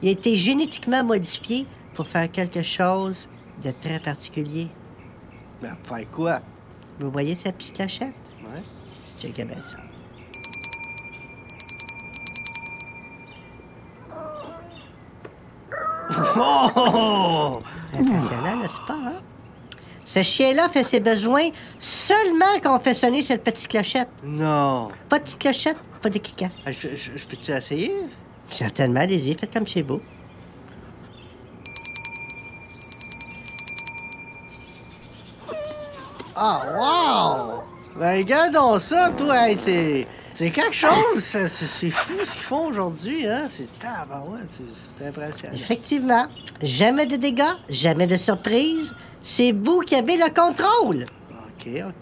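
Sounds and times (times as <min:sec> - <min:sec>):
hand bell ringing: 0:10.4 - 0:13.8, 0:31.6 - 0:35.1
grunt-like vocal sound: 0:17.6 - 0:19.1.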